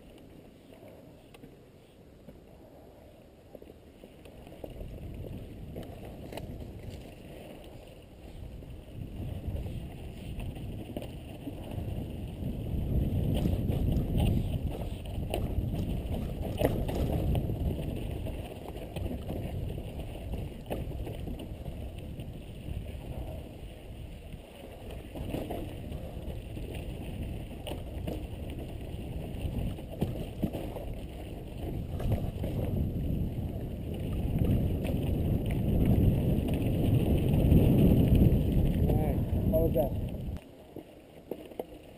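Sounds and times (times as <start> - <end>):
bike tyres rolling on dirt trail: 0.0 - 41.9
wind buffeting microphone: 4.6 - 40.4
bike knocking and rattling: 9.0 - 21.7.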